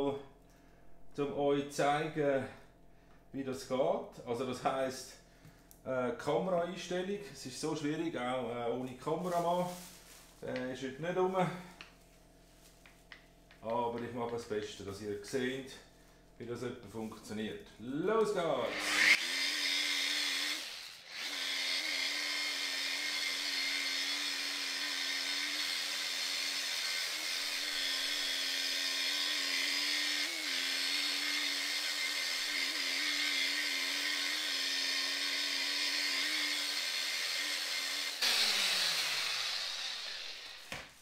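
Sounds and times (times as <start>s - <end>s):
machine polisher motor hum: 38.1s - 41.0s.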